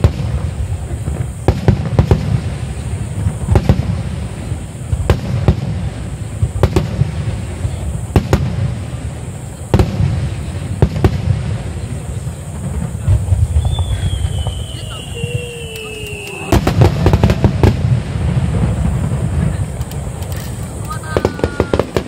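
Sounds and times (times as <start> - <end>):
firework shells bursting: 0.0 - 22.0.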